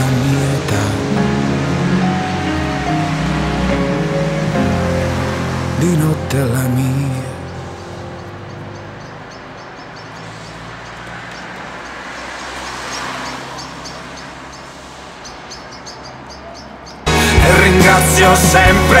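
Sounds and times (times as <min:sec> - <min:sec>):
car passing by: 0:00.0 - 0:16.3
steady traffic noise: 0:00.0 - 0:17.6
small birds chirping: 0:06.8 - 0:17.1.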